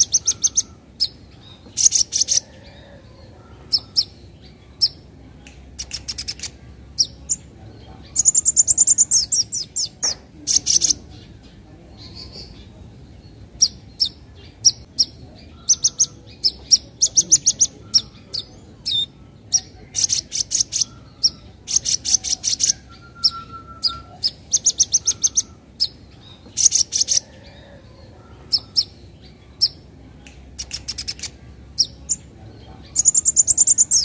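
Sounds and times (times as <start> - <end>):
bird chipping calls: 0.0 - 5.0, 13.5 - 29.8, 30.6 - 34.0.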